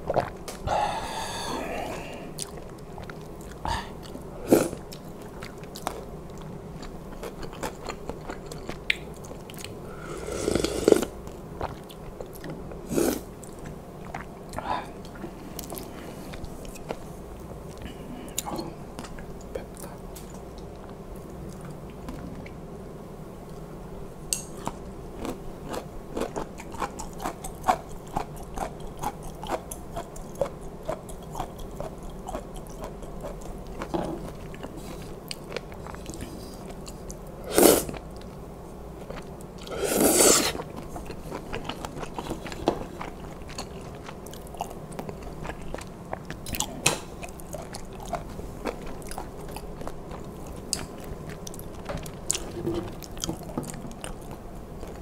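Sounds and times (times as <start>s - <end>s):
wet chewing with mouth clicks: 0.0s - 0.7s, 1.7s - 9.8s, 10.6s - 17.1s, 24.6s - 37.2s, 40.4s - 55.0s
loud slurps: 37.5s - 38.0s, 39.7s - 40.6s.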